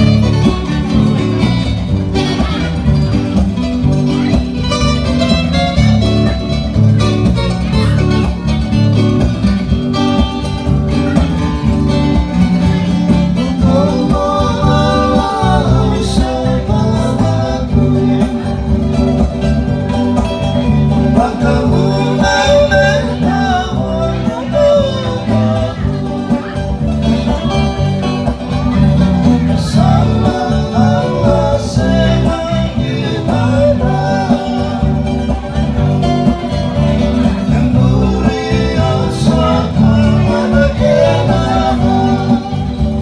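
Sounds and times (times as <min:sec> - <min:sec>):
acoustic guitars strumming: 0:00.0 - 0:43.0
men singing: 0:12.8 - 0:19.7, 0:20.6 - 0:28.0, 0:28.7 - 0:43.0.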